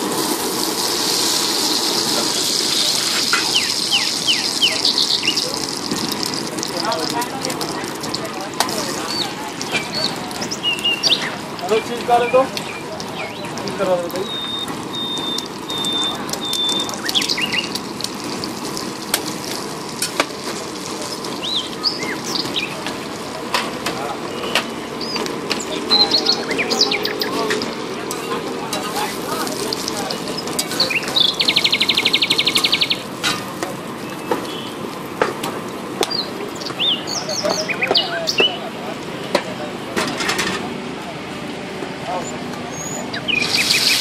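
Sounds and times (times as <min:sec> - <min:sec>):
egg sizzling in oil: 0:00.0 - 0:36.1, 0:43.4 - 0:44.0.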